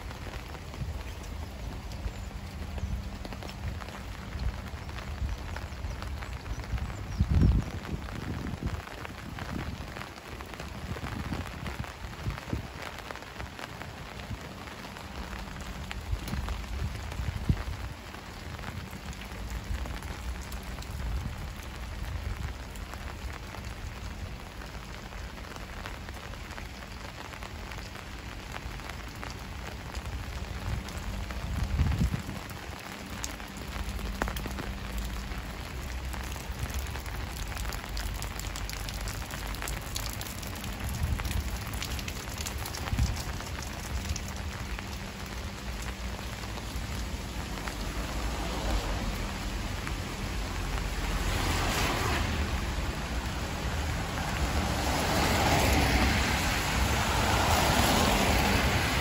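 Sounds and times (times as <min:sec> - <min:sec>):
rain falling on street: 0:00.0 - 0:59.0.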